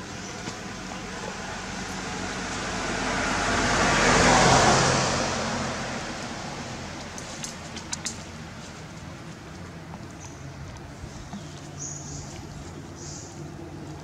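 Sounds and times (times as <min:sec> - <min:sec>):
vehicle driving past: 0:00.6 - 0:07.2.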